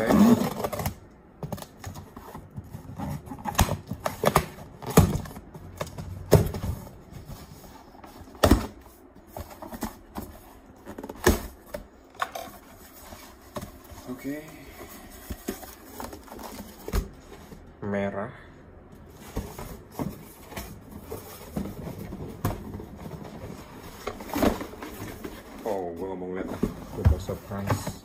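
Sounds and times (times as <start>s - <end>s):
cardboard scraping and rustling: 0.0s - 17.7s, 19.1s - 28.0s.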